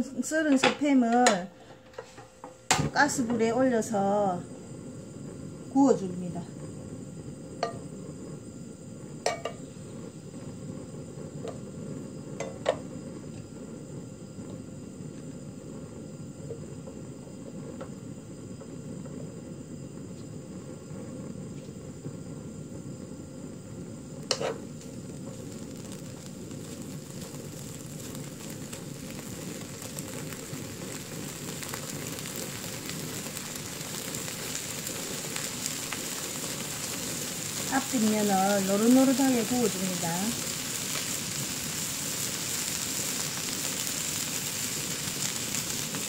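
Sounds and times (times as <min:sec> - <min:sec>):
meat sizzling in a frying pan: 0:07.0 - 0:15.6, 0:21.5 - 0:46.0.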